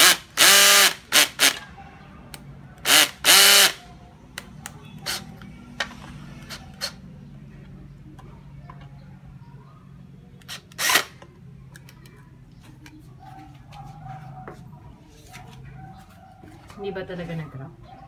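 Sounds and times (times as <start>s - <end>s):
cordless drill driving screws: 0.0s - 1.6s, 2.8s - 3.8s, 10.5s - 11.1s.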